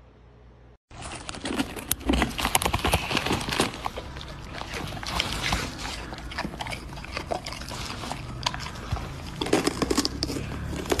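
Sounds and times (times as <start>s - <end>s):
crisp crunches of pepper: 1.0s - 11.0s
dog chewing wet mouth sounds: 2.3s - 11.0s.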